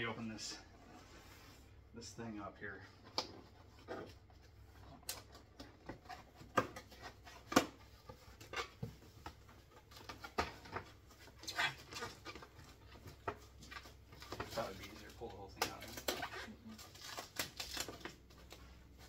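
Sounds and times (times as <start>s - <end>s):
rustling scrape: 0.8s - 1.8s
hands opening cardboard box: 3.0s - 19.0s.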